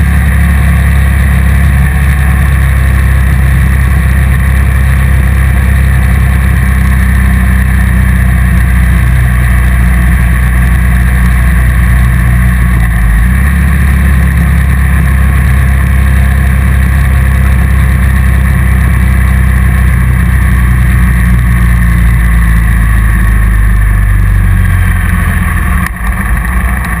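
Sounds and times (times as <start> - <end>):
motorcycle engine cruising: 0.0 - 27.0.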